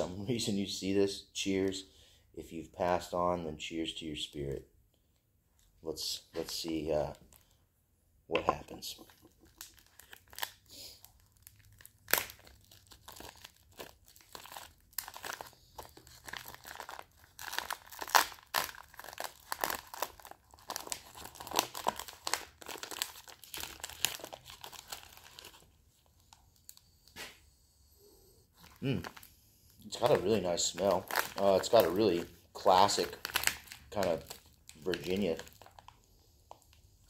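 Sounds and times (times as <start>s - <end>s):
foil pouch crinkling: 8.8s - 26.8s, 28.7s - 36.8s.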